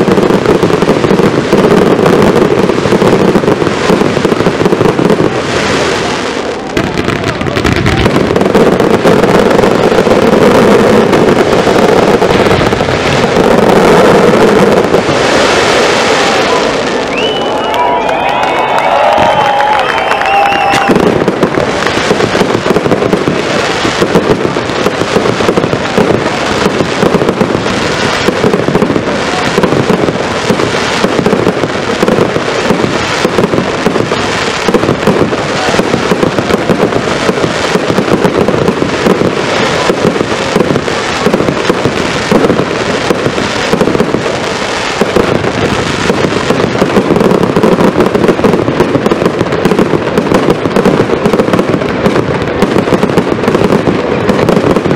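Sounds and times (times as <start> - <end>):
fireworks barrage: 0.0 - 54.9.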